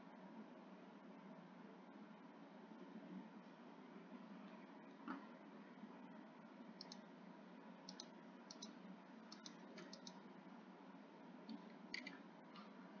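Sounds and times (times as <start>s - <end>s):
steady low hiss: 0.0s - 13.0s
computer mouse clicking: 6.8s - 7.0s, 7.9s - 10.2s, 11.5s - 12.7s.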